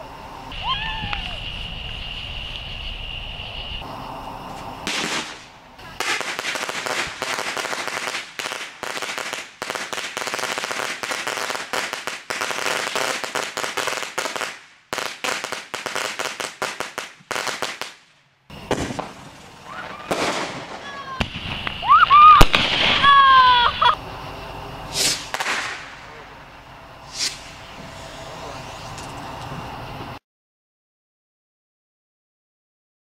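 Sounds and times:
high wavering firework tones: 0:00.0 - 0:14.5, 0:18.5 - 0:30.2
ground firework crackling and popping: 0:00.8 - 0:02.0, 0:04.8 - 0:24.0, 0:24.9 - 0:27.8.

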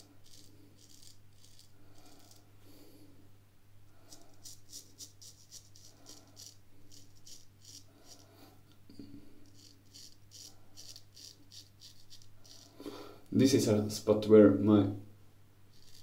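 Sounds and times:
straight razor shaving stubble: 0:00.0 - 0:02.4, 0:04.1 - 0:08.2, 0:09.5 - 0:12.7.

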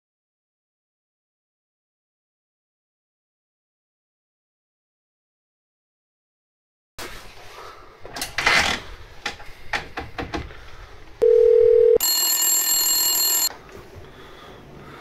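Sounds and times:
telephone buzzing ring: 0:11.2 - 0:13.5
telephone earpiece tone: 0:11.2 - 0:13.5.

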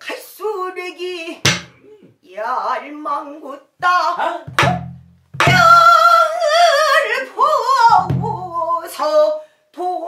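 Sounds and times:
woman singing: 0:00.0 - 0:04.8, 0:05.4 - 0:10.0
barrel drum strokes: 0:01.4 - 0:01.8, 0:04.5 - 0:05.9.

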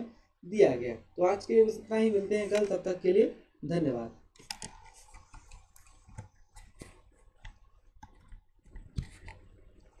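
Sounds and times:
computer mouse and keyboard clicks: 0:02.4 - 0:02.8, 0:04.3 - 0:10.0.

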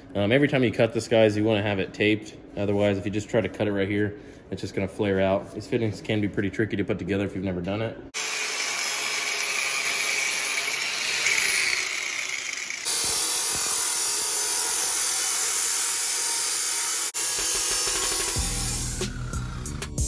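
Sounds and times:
angle grinder cutting: 0:08.2 - 0:20.0
cut-off saw cutting steel: 0:08.2 - 0:20.0.

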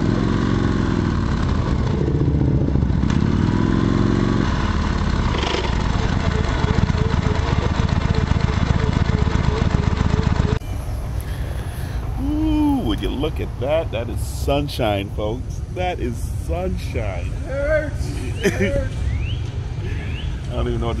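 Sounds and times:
motorcycle engine running: 0:00.0 - 0:11.1.

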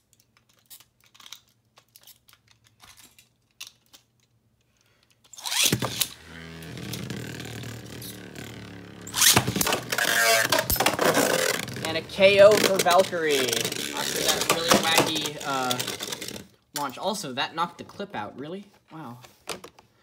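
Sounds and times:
plastic clicks and rattles: 0:00.0 - 0:06.0, 0:09.5 - 0:17.0
spinning tops launched with rip: 0:05.3 - 0:07.4, 0:09.0 - 0:11.9.

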